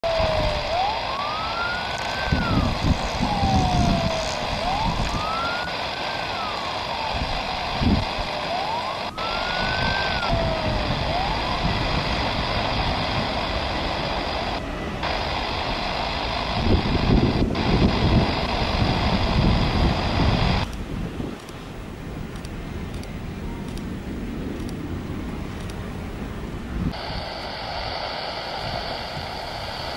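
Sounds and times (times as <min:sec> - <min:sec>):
wailing siren: 0:00.0 - 0:20.6, 0:26.8 - 0:29.9
jet engines whine and rumble: 0:00.0 - 0:29.9.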